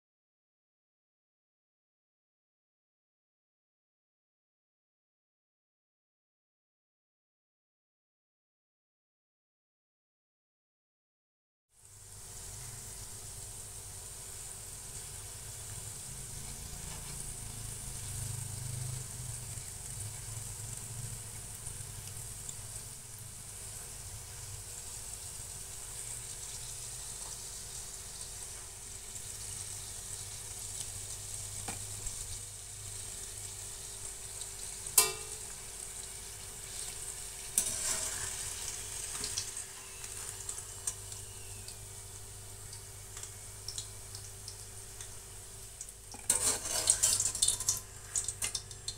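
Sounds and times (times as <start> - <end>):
food deep-frying in oil: 11.7 - 48.9.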